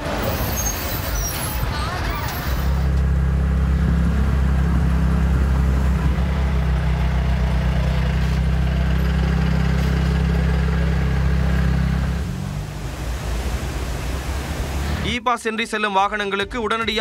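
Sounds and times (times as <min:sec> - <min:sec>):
vehicle engine idling: 0:02.8 - 0:15.0.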